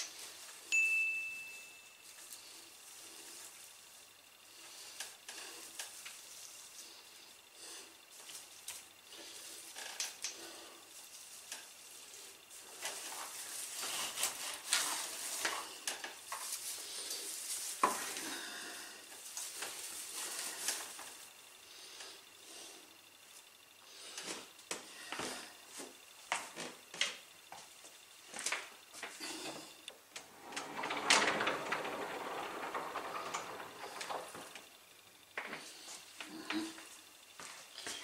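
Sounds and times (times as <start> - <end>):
artificial garland rustling: 0.0 - 4.6, 10.7 - 21.4, 30.0 - 36.2.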